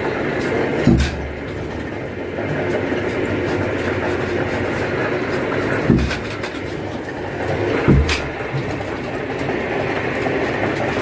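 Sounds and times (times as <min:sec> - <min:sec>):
winch machinery clattering: 0:00.0 - 0:11.0
heavy thump: 0:00.8 - 0:01.3, 0:05.8 - 0:06.4, 0:07.8 - 0:08.7.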